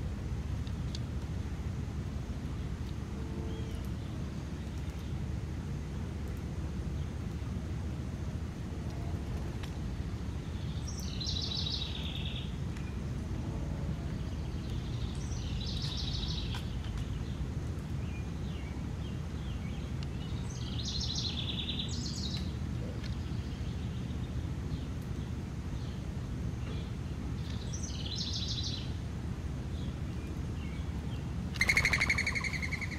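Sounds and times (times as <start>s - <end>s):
low outdoor rumble: 0.0s - 32.9s
songbird trilling: 27.4s - 28.9s, 30.6s - 32.9s.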